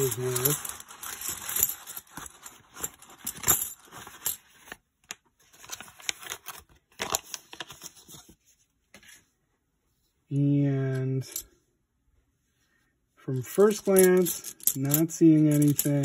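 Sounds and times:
coins clinking: 0.0s - 4.4s, 13.6s - 16.0s.

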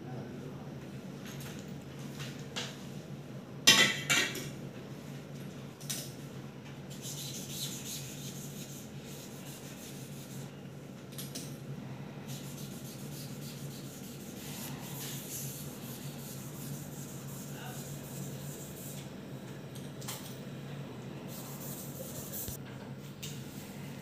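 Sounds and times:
steady low hum: 0.0s - 24.0s
fingertips rubbing on a screen: 12.3s - 19.0s, 21.3s - 22.6s.

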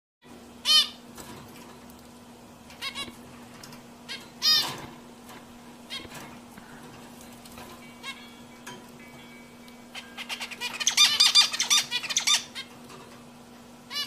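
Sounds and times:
steady low hum: 0.2s - 14.0s
finch calls: 0.6s - 1.0s, 2.8s - 3.2s, 4.1s - 4.9s, 9.9s - 12.7s.

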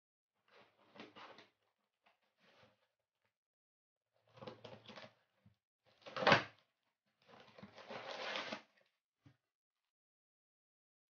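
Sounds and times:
cardboard flaps rustling and scraping: 7.4s - 8.7s.

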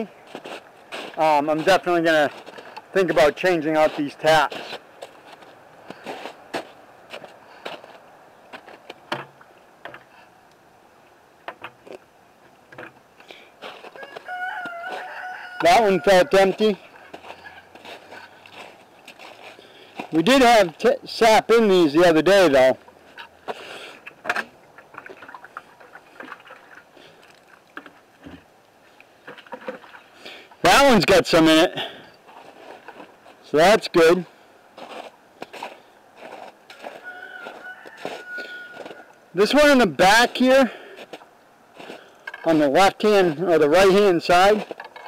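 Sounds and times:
footsteps crunching in snow: 0.0s - 9.0s, 13.6s - 21.0s, 32.2s - 33.5s, 34.8s - 39.1s, 40.2s - 42.1s
plastic clicks and rustles: 44.6s - 45.0s.

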